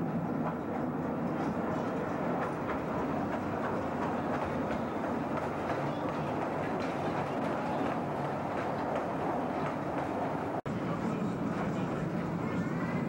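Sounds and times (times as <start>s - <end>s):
small train rumbling: 0.0s - 13.0s
wheels clicking over rails: 0.4s - 10.6s.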